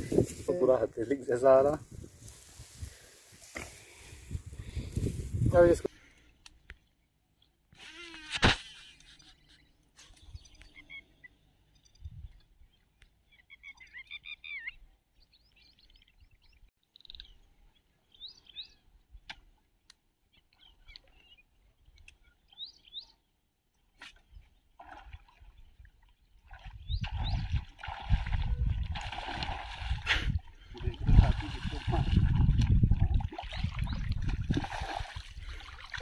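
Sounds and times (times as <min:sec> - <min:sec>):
birds chirping: 0:08.9 - 0:19.3, 0:20.3 - 0:23.3, 0:26.5 - 0:27.7, 0:33.3 - 0:36.0
water splashing and churning: 0:23.9 - 0:36.0.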